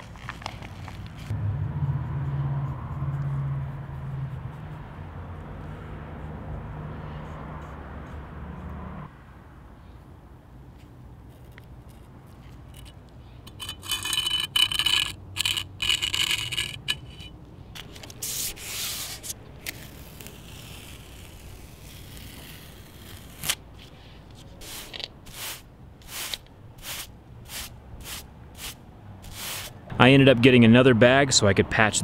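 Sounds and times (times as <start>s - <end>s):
scraping concrete: 11.4s - 25.5s
push broom brushing: 12.7s - 19.9s, 21.0s - 29.8s
tape tearing and peeling: 13.8s - 29.8s.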